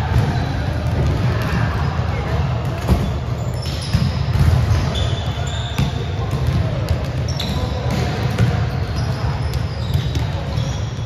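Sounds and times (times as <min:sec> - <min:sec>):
volleyballs hit and bouncing: 0:00.0 - 0:11.0
sneakers squeaking on court: 0:02.8 - 0:11.0.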